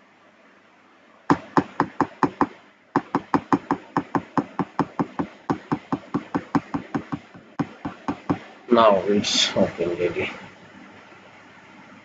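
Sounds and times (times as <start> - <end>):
hammer tapping on metal punch: 1.3 - 8.4.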